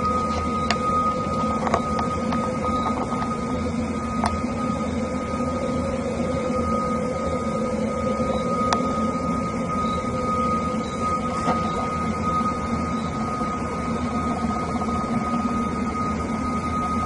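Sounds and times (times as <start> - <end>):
mechanical drone with high tone: 0.0 - 17.0.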